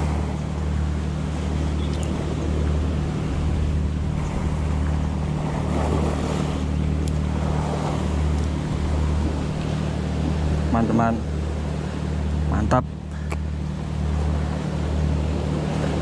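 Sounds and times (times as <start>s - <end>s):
wind on microphone: 0.0s - 12.5s
surf washing against rocks: 0.0s - 16.0s.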